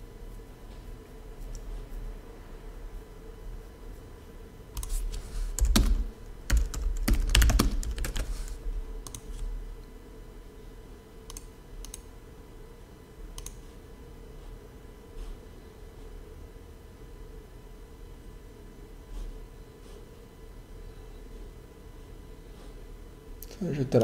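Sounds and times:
low steady hum: 0.0s - 24.0s
typing on keyboard: 5.6s - 8.3s, 9.0s - 9.5s.

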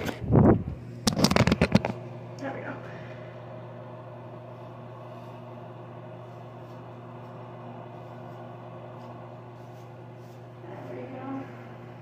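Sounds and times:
low mechanical hum: 0.0s - 12.0s
faint soft rustles: 6.2s - 11.6s.

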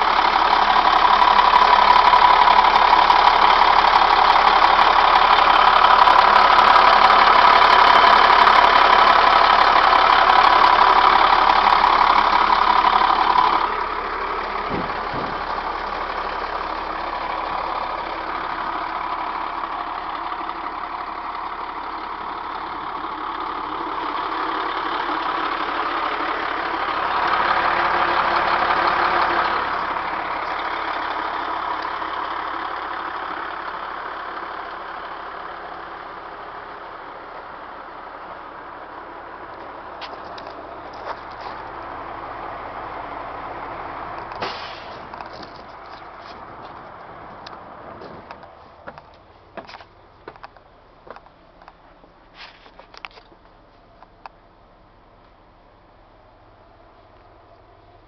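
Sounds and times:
diesel bus engine idling: 0.0s - 58.0s.

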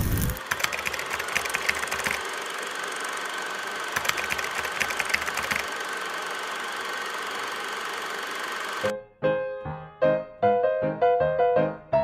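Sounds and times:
film projector clattering: 0.3s - 2.5s, 3.8s - 5.8s.

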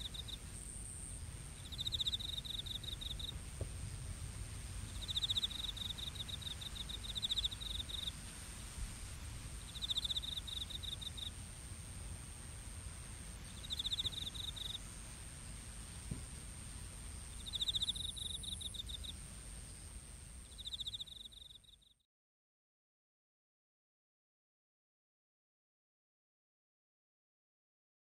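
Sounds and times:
low background rumble: 0.0s - 21.4s
crickets chirping: 0.0s - 22.0s
high insect whine: 0.0s - 22.0s.

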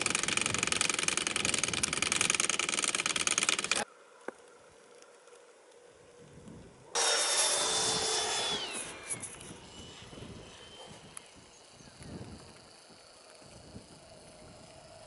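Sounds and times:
model aircraft whine: 6.8s - 15.0s.

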